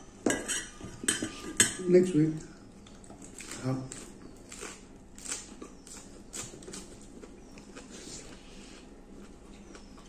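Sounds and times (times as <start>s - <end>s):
people chewing and lip smacking: 2.4s - 10.0s.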